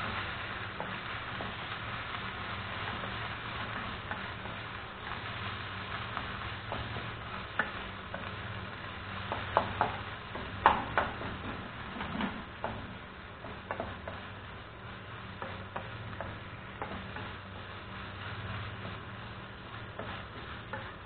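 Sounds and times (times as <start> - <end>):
spatula tapping a pan: 0.0 - 14.6, 15.2 - 21.0
food sizzling in a frying pan: 0.0 - 21.0
spatula stirring in a pan: 0.0 - 21.0
steady low hum: 0.0 - 21.0.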